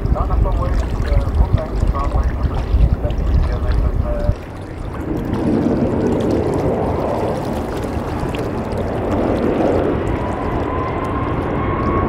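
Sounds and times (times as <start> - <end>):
jet engines rumbling: 0.0 - 12.0
rising engine whine: 8.4 - 12.0.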